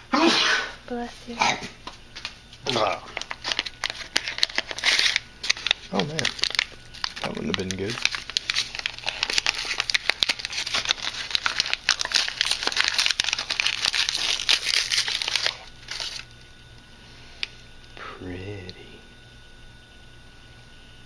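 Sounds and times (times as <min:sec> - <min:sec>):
paper tearing and crumpling: 0:02.6 - 0:16.3.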